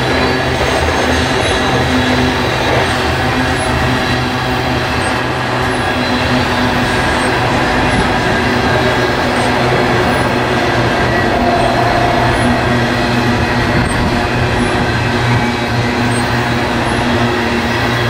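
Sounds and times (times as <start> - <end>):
freight train wheels rumbling: 0.0 - 18.0.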